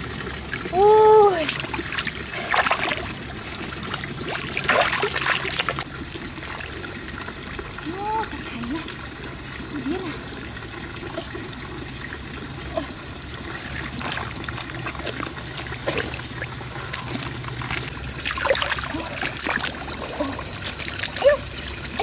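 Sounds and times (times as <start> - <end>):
steady high whine: 0.0 - 22.0
hands sloshing in muddy water: 1.3 - 6.7, 13.4 - 22.0.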